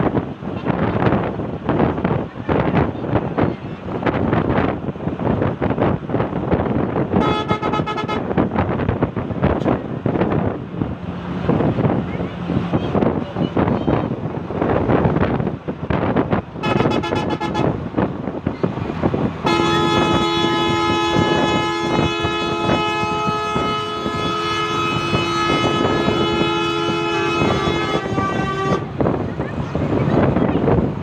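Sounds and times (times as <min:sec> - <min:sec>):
moving bus rumble: 0:00.0 - 0:31.0
vehicle horn blast: 0:07.2 - 0:08.5, 0:16.6 - 0:17.8, 0:19.4 - 0:29.1.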